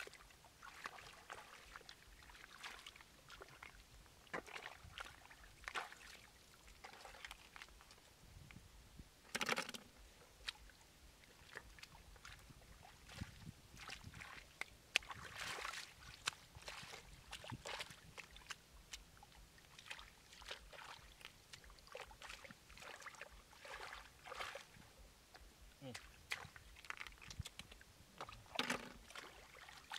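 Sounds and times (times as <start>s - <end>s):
hands splashing in muddy water: 0.1s - 3.7s, 4.3s - 7.7s, 11.4s - 24.8s, 25.9s - 29.9s
small clicks and knocks: 9.3s - 9.9s.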